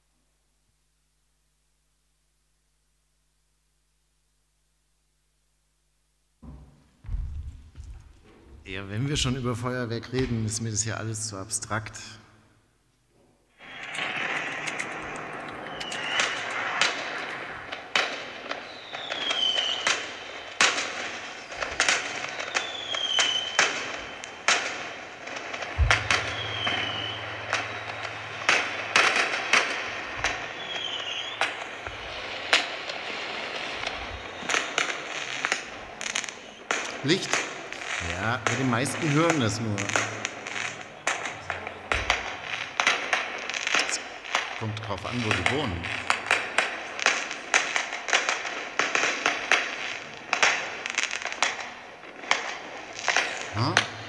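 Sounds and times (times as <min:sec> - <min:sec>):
steady hiss: 0:00.0 - 0:54.0
fireworks bangs and crackles: 0:06.4 - 0:12.2, 0:13.5 - 0:54.0
firework whistles: 0:13.5 - 0:54.0.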